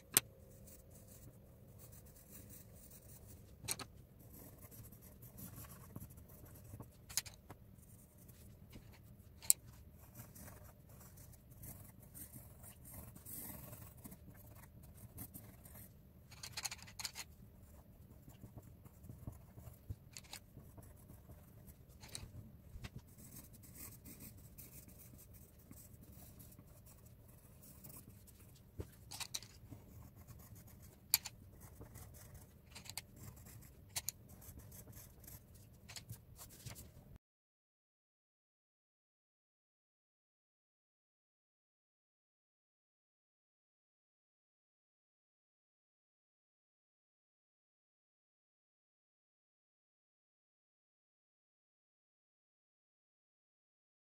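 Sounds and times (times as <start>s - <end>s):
pencils scratching on paper: 0.5s - 37.0s.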